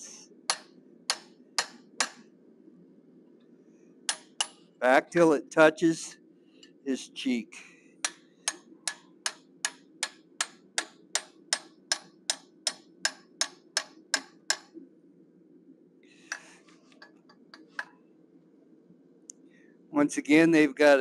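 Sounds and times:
hammer tapping chisel on steel: 0:00.5 - 0:02.2, 0:04.1 - 0:04.6, 0:08.0 - 0:14.8.

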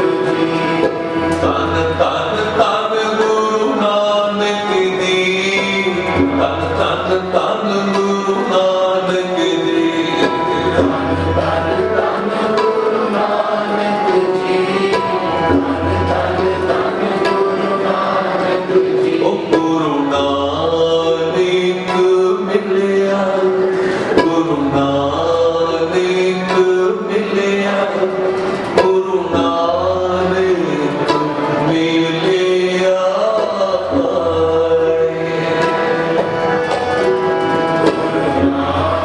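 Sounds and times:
men singing a hymn: 0:00.0 - 0:28.2, 0:38.4 - 0:39.0
harmoniums: 0:00.0 - 0:39.0
tabla beat: 0:00.0 - 0:39.0.

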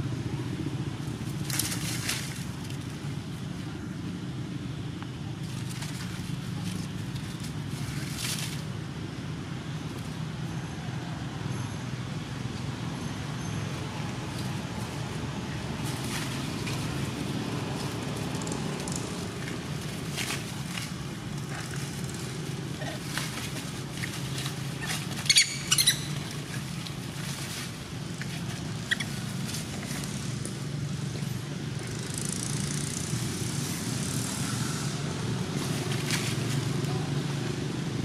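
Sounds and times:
dry leaves rustling: 0:00.2 - 0:11.4, 0:12.3 - 0:38.0
monkey squealing: 0:24.7 - 0:26.7, 0:28.2 - 0:29.8.

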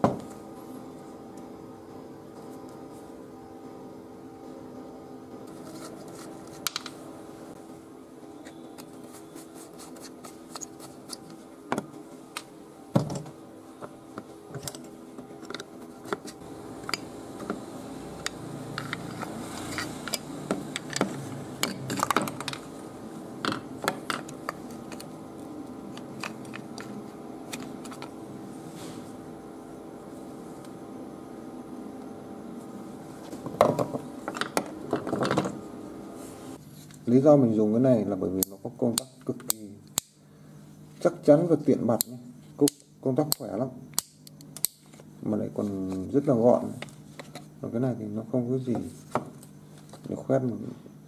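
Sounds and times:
steady background hum: 0:00.0 - 0:51.0.

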